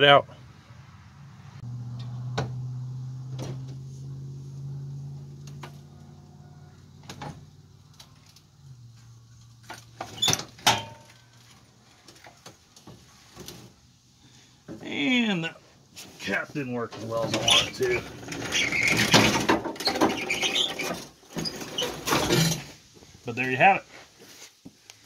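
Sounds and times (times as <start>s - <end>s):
sharp metal clunks: 10.3s - 11.3s.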